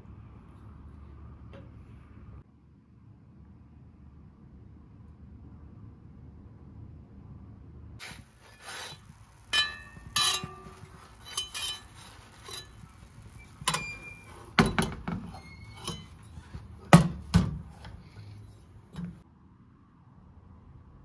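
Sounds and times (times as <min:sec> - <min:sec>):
dishes clinking: 0:09.5 - 0:17.9.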